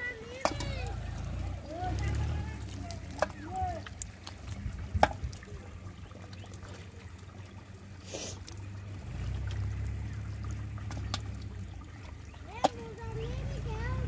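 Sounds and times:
low steady rumble: 0.0 - 14.0
wet mud squelching: 0.0 - 14.0.

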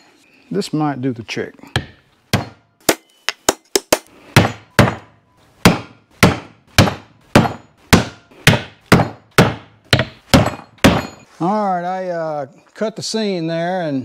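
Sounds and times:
hammer striking wooden board: 1.8 - 11.2.

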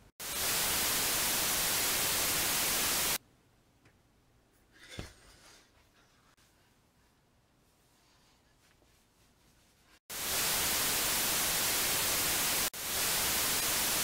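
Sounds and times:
static white noise burst: 0.1 - 3.2, 10.1 - 14.0.

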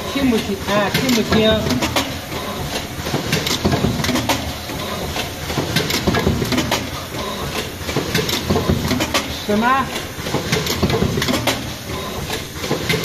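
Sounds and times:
machine clicks and knocks: 0.0 - 13.0
steady mechanical noise: 0.0 - 13.0.

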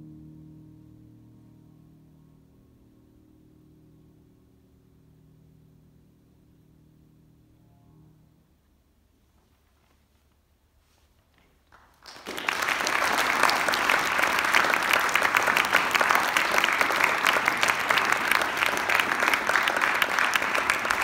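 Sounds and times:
audience applause: 11.7 - 21.0.

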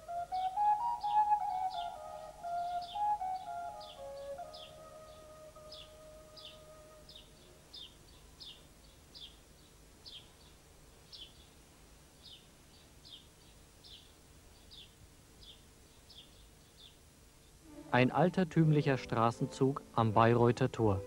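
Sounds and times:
small songbird chirping: 0.1 - 11.6, 12.2 - 18.0
held musical note: 17.6 - 21.0.

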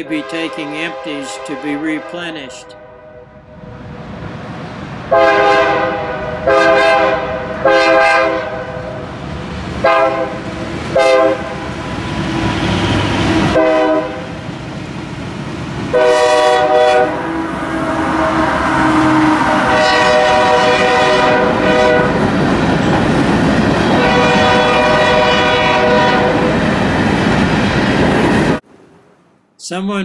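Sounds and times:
locomotive air horn blasts: 0.0 - 3.6, 5.1 - 8.9, 9.8 - 11.7, 13.5 - 14.3, 15.9 - 22.2, 24.0 - 26.5.

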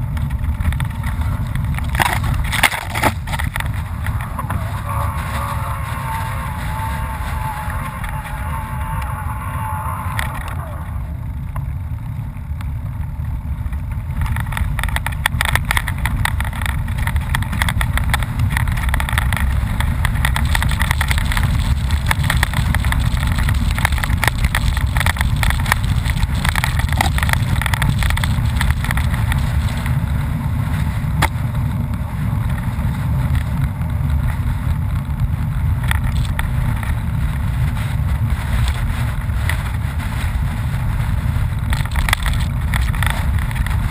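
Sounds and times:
camera rattles and knocks: 0.0 - 4.6, 13.7 - 30.1, 35.8 - 43.9
wind rumbling on microphone: 0.0 - 43.9.

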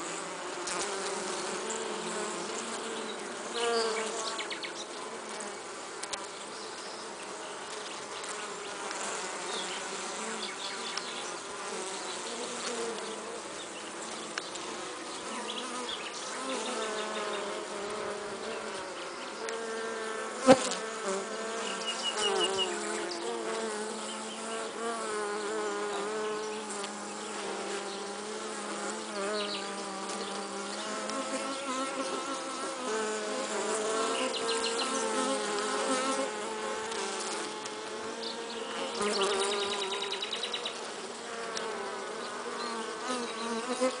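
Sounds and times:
honey bees buzzing: 0.0 - 44.0.

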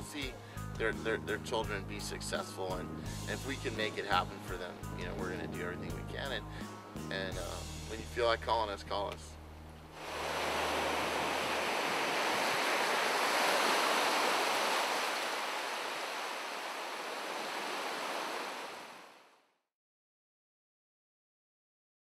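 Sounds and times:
waves breaking on shore: 10.0 - 19.4.

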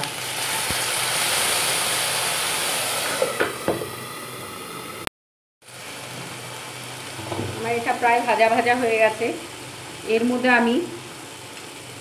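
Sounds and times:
paste sizzling in hot oil: 0.0 - 5.1.

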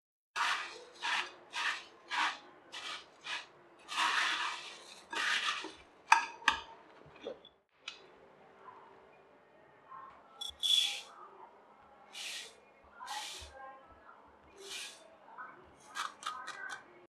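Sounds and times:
puffed rice rustling in a bowl: 0.4 - 5.8.

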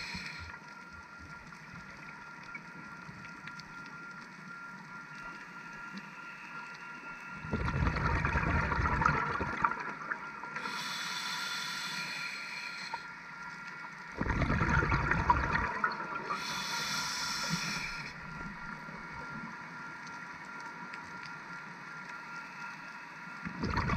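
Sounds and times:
regulator inhalation hiss: 0.0 - 0.6, 10.5 - 13.2, 16.2 - 18.3
exhaled bubbles gurgling underwater: 7.4 - 10.8, 14.1 - 19.3, 23.4 - 23.9.

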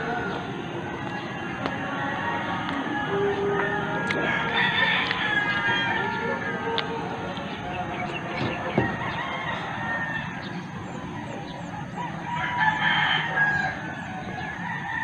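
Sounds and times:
rooster crowing: 3.1 - 6.6, 8.5 - 10.6, 11.9 - 15.0.

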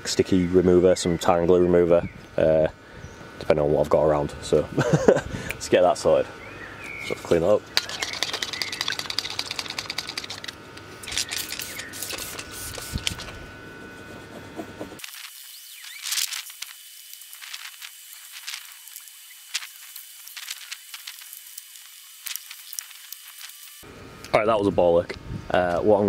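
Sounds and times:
spray bottle hissing bursts: 11.1 - 13.2.

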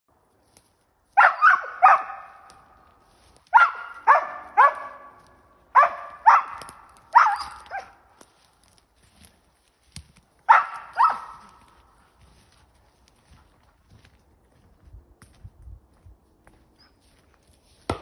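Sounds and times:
dog barking sharply: 1.2 - 2.5, 3.5 - 5.2, 5.8 - 8.0, 10.5 - 11.6.

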